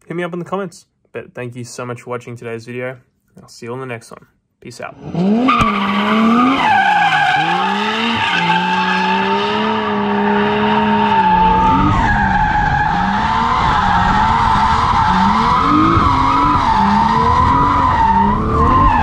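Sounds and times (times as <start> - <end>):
car engine revving: 5.0 - 19.0.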